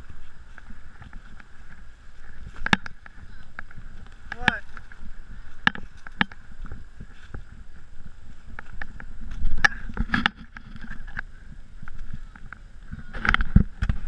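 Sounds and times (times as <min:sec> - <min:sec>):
footsteps on rocky dirt trail: 0:00.0 - 0:14.0.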